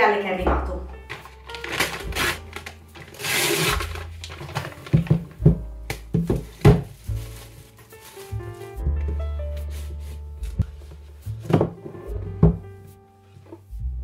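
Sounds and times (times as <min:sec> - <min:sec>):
plastic bag crinkling: 0:01.0 - 0:05.5, 0:06.1 - 0:08.8, 0:09.6 - 0:10.4
paper mailer bag rustling: 0:01.0 - 0:08.8, 0:09.4 - 0:11.4
box thumping on tabletop: 0:04.9 - 0:07.0.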